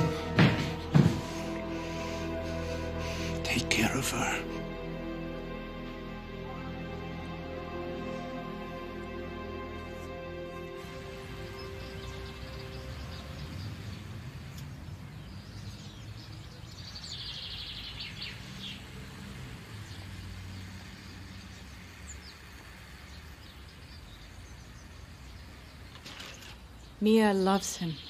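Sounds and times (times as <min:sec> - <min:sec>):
birds chirping: 0:00.0 - 0:28.0
low street rumble: 0:00.0 - 0:28.0.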